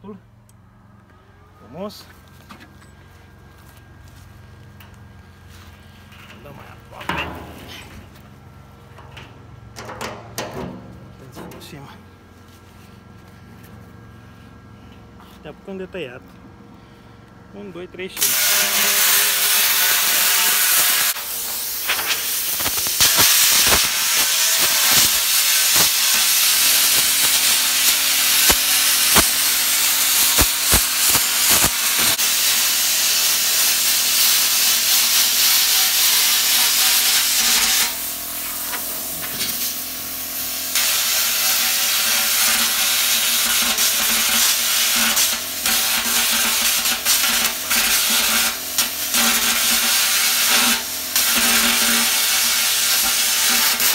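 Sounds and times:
sharp crackles: 18.2 - 32.2, 40.7 - 53.9
plasma cutter hissing: 18.2 - 53.9.

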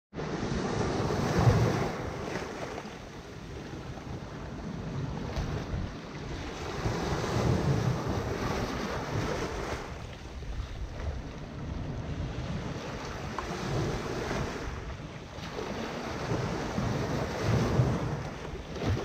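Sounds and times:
wind rumble on microphone: 0.1 - 19.0
small waves washing over sand and rocks: 0.2 - 19.0.

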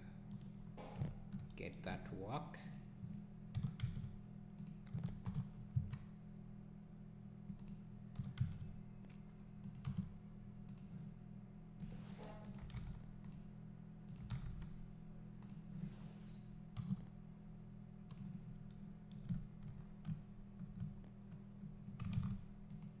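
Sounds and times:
steady low hum: 0.0 - 23.0
computer mouse clicks: 2.7 - 6.1, 7.5 - 11.1, 11.8 - 13.5, 14.1 - 14.8, 15.4 - 15.6, 18.1 - 23.0.

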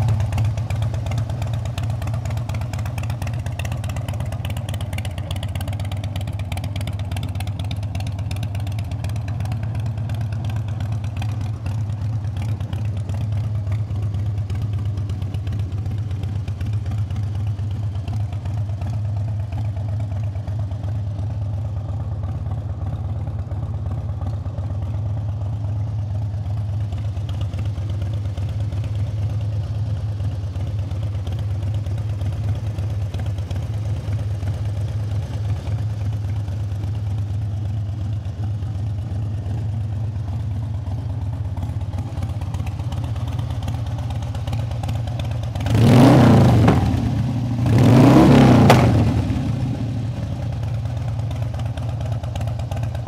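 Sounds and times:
motorcycle engine idling: 0.0 - 53.0
motorcycle engine revving: 42.3 - 51.3.

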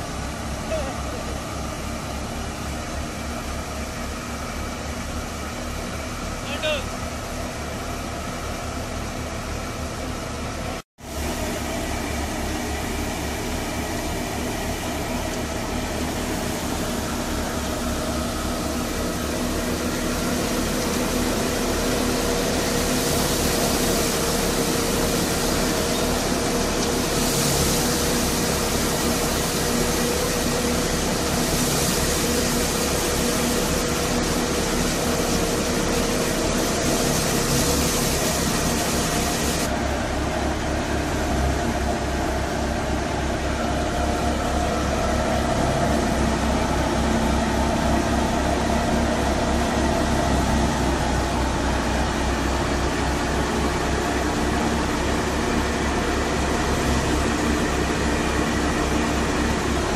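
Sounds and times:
threshing machine running: 0.0 - 59.9
tractor diesel engine hum: 0.0 - 59.9
broad hiss: 11.0 - 39.8.

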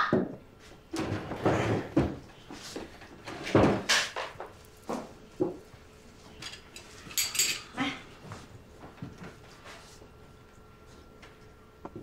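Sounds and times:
chairs being moved: 0.9 - 5.1.

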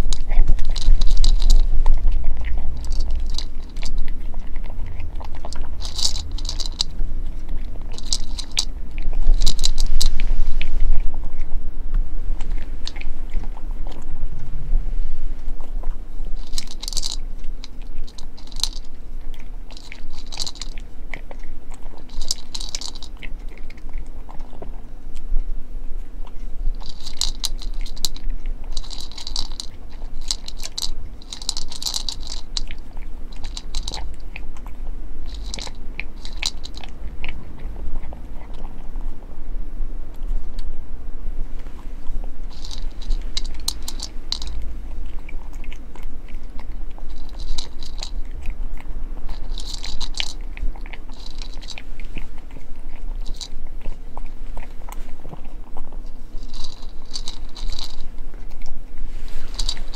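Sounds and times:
cat crunching dry kibble: 0.0 - 59.9.

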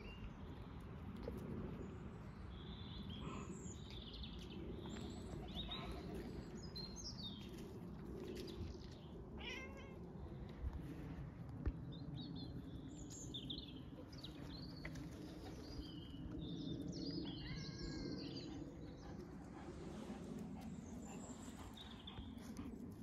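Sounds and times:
cat meow: 9.4 - 10.0, 17.3 - 18.2
small birds chirping: 11.8 - 19.4.

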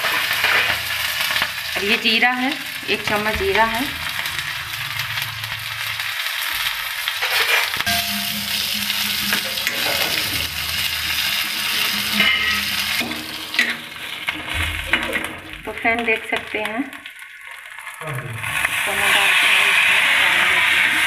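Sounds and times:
spices sizzling in hot oil: 0.0 - 21.0
metal ladle scraping: 7.0 - 15.4.

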